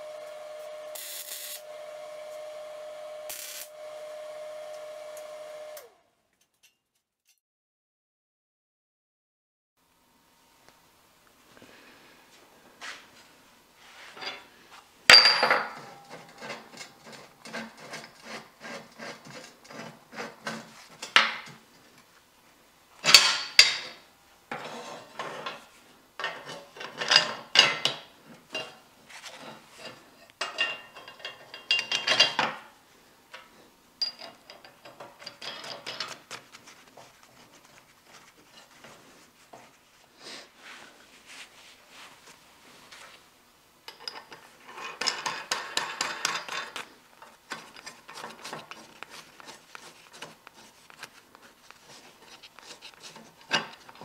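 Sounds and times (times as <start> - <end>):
steel parts clinking and clanking: 23.0 - 24.0, 29.4 - 32.6, 34.0 - 36.3, 43.9 - 48.6
light tapping and rubbing: 44.8 - 54.0.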